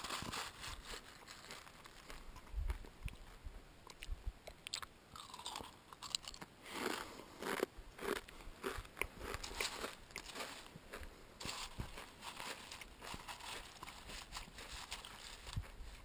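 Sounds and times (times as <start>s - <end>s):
dry cereal flakes crunching: 0.0s - 2.2s, 5.2s - 10.7s, 11.4s - 15.7s.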